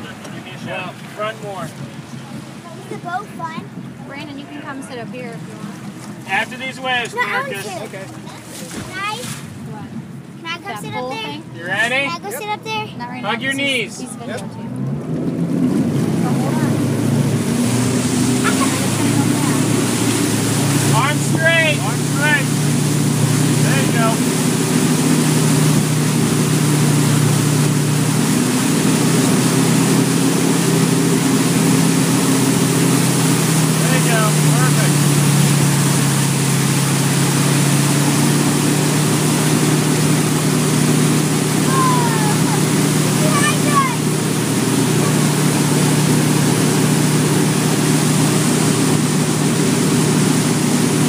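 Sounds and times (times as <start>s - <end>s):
boat engine droning: 0.0s - 51.0s
water churning in wake: 0.0s - 51.0s.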